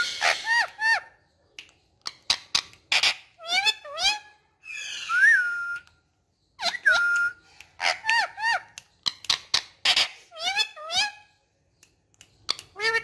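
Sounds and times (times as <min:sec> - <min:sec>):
parakeet chirpy calls: 0:00.0 - 0:01.2, 0:02.0 - 0:05.2, 0:07.7 - 0:11.3, 0:12.6 - 0:13.0
sharp bird clicks: 0:01.4 - 0:03.3, 0:06.6 - 0:10.2, 0:11.6 - 0:13.0
parakeet whistling: 0:04.6 - 0:05.9, 0:06.6 - 0:08.6.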